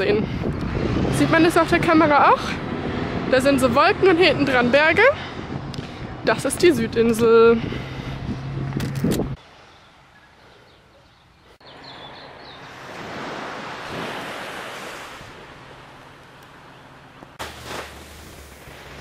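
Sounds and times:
wind on microphone: 0.0 - 9.4
waves washing onto sand: 12.6 - 19.0.

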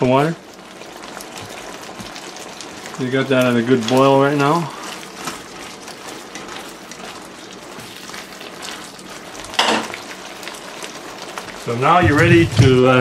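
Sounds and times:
sauce bubbling in a pan: 0.0 - 13.0
clatter against pan: 9.5 - 10.0.

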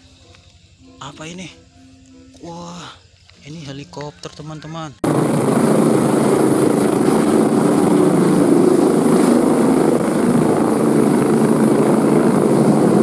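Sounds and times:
helicopter rotor beating: 5.0 - 13.0
turbine whine: 5.0 - 13.0.

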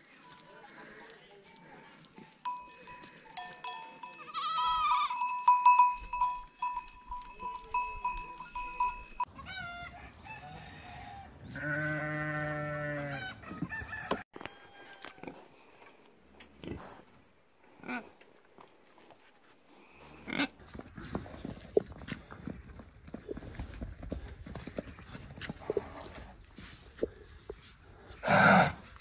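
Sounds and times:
high ringing tone: 2.5 - 9.3
goats bleating: 4.2 - 5.2, 11.6 - 13.2
sheep bleating: 4.2 - 5.2, 11.6 - 13.3.

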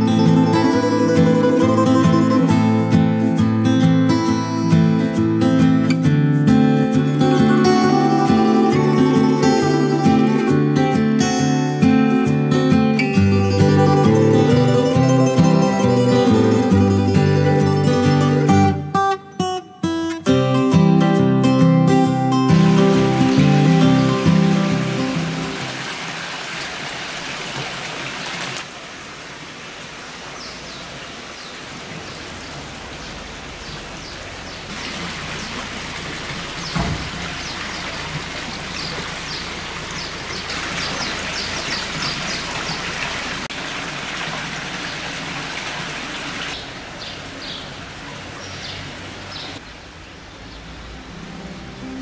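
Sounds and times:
fountain water running: 0.0 - 3.0, 22.4 - 50.3
bird chirps: 36.6 - 42.9.

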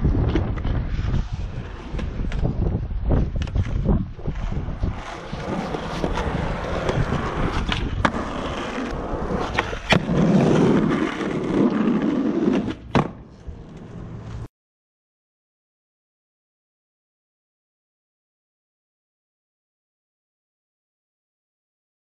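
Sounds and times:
skateboard wheels rolling on pavement: 0.0 - 14.5
skateboard clacks: 4.9 - 14.4.

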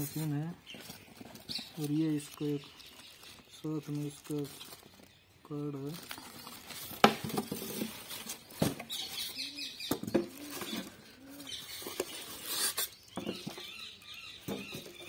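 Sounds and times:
foam squeaking against cardboard: 6.6 - 15.0.

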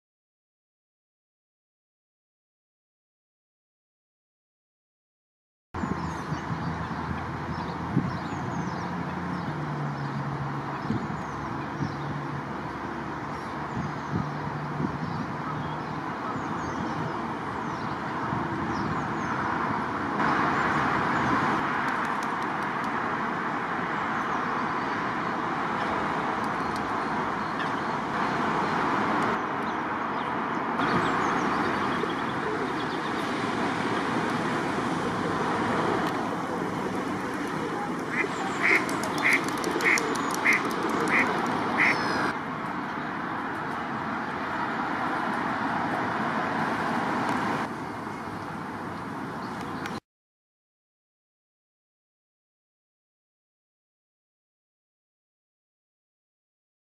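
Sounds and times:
duck quacking: 38.1 - 42.3.

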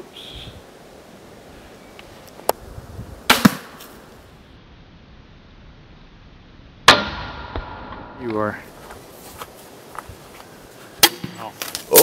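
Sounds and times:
sharp crack: 3.2 - 4.2, 6.8 - 8.6, 11.0 - 12.0
crossbow shot snap: 3.3 - 3.9, 6.9 - 8.1.

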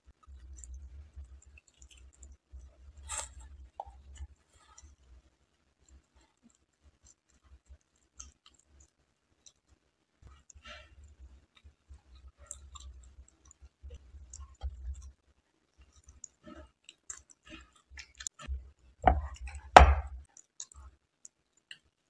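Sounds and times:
loud knocks: 19.1 - 20.2.

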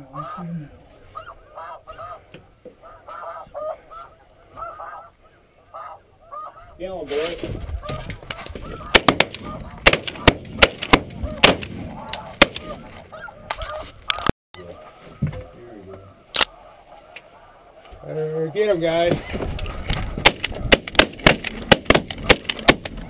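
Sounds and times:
geese honking: 0.0 - 20.8, 21.5 - 23.0
rustling: 6.9 - 23.0
shotgun blasts: 8.9 - 11.8, 20.2 - 23.0.

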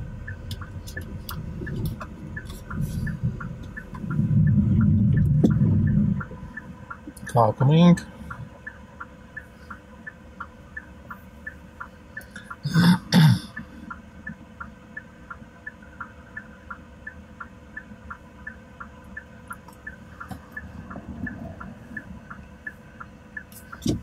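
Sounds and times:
faint regular ticking: 0.0 - 12.7, 13.5 - 24.0
faint low hum: 0.0 - 24.0
person coughing: 12.6 - 13.6.

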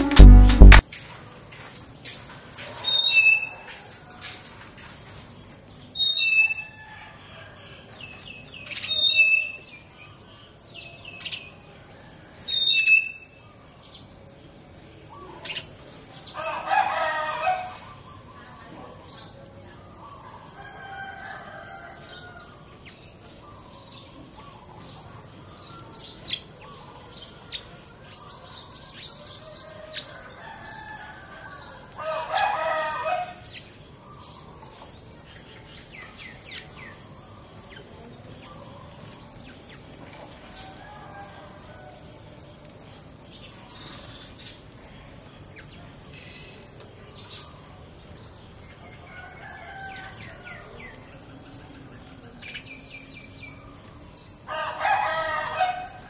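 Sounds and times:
rooster crowing: 6.6 - 8.0, 16.3 - 18.0, 20.4 - 22.6, 29.4 - 33.6, 40.5 - 42.2, 48.8 - 51.0, 54.5 - 56.0
sparrows chirping: 31.6 - 40.7, 43.2 - 54.5.

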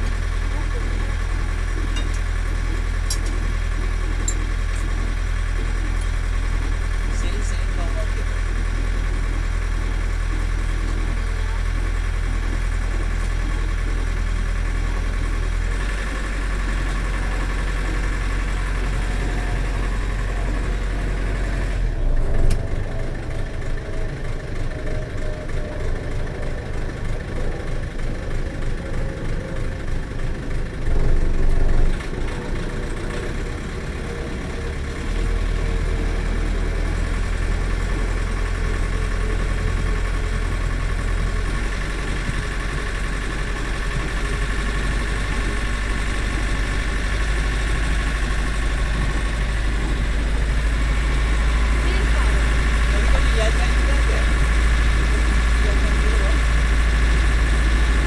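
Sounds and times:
boat engine droning: 0.0 - 58.0.

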